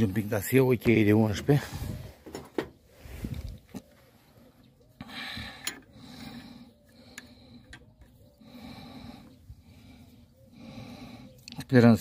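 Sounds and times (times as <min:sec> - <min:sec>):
spanner clicking and scraping metal: 0:05.6 - 0:05.9.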